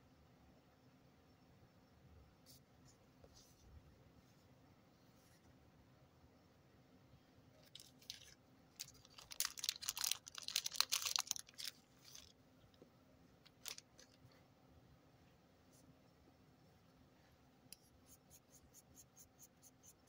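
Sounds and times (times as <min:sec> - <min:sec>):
plastic zip bag crinkling: 0:07.6 - 0:12.3, 0:13.5 - 0:14.2.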